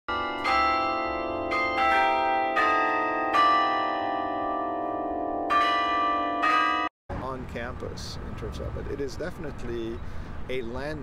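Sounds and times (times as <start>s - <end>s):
tower bells ringing: 0.1s - 6.9s.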